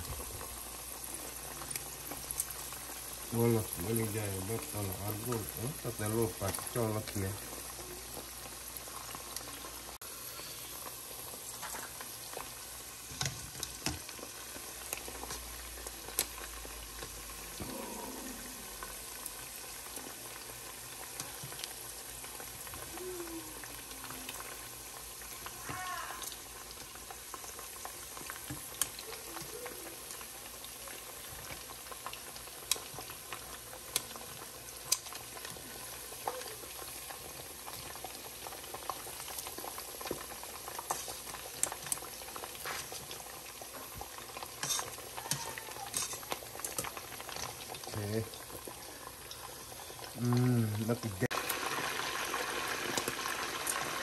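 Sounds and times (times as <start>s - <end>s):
chicken sizzling in hot oil: 0.0s - 54.0s.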